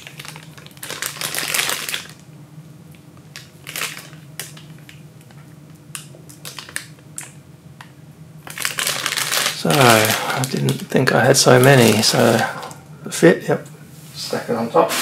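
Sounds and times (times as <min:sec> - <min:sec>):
plastic bag crinkling and rustling: 0:00.0 - 0:02.2, 0:03.3 - 0:05.0, 0:06.3 - 0:07.3, 0:08.4 - 0:12.8.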